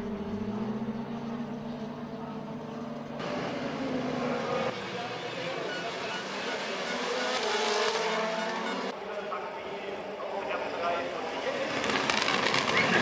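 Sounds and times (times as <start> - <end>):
low engine drone: 0.0 - 4.8
racing car engines revving: 0.0 - 13.0.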